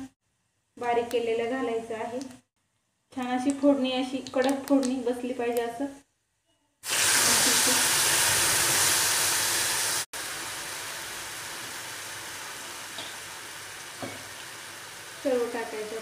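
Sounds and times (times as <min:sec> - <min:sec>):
hot oil sizzling: 0:06.8 - 0:16.0.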